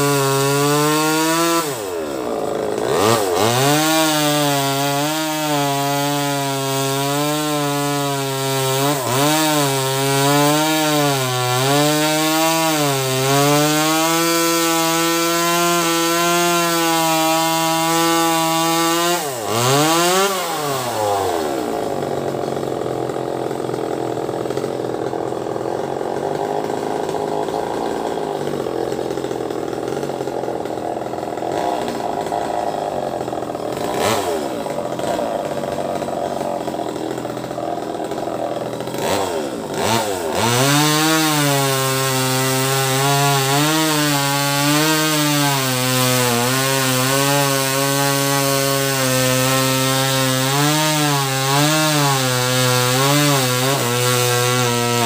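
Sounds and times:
chainsaw revving and cutting: 0.0 - 55.0.

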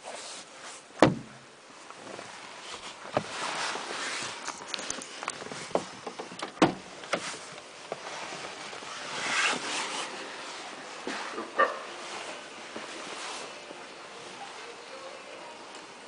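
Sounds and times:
clicks and knocks in car: 1.0 - 1.4, 5.3 - 7.3
sharp thump: 1.0 - 1.4.

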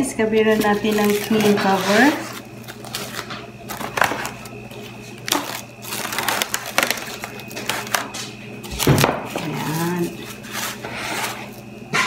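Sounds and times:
cling film crinkling: 0.4 - 8.9.

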